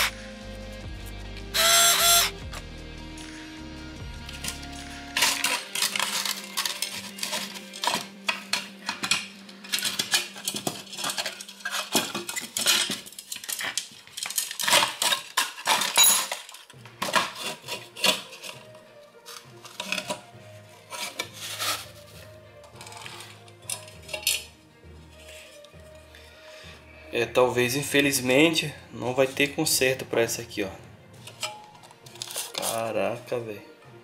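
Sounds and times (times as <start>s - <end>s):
metal clanks: 4.4s - 18.7s, 31.2s - 32.8s
metal case and screws rattling: 4.4s - 20.3s, 22.7s - 24.5s.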